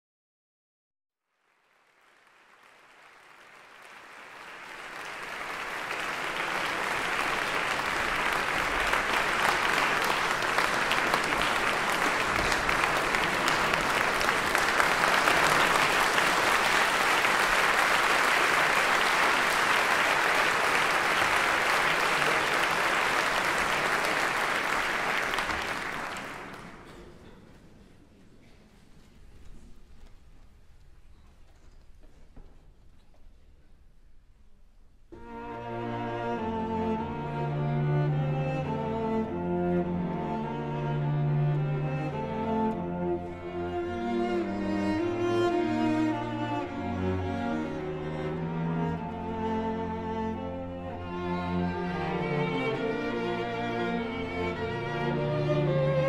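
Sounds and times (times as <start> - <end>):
audience applauding: 1.3 - 27.3.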